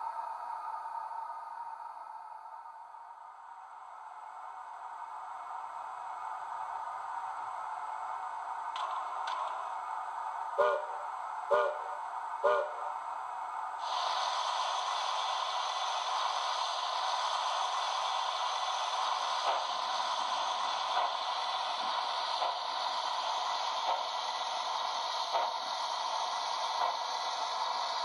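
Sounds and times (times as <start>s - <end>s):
faint locomotive chuffs: 0.0s - 28.0s
steady steam hiss: 0.0s - 28.0s
steam whistle toots: 10.6s - 12.9s.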